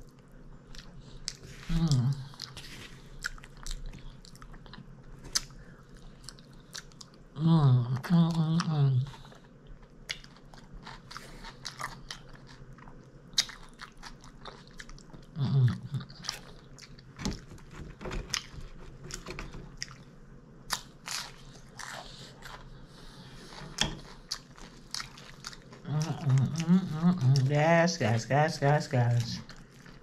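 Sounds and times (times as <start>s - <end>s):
person chewing crunchy food: 0.0s - 7.3s, 8.5s - 27.7s, 29.0s - 30.0s
person humming mmm: 1.6s - 2.5s, 15.4s - 16.1s, 25.8s - 27.5s.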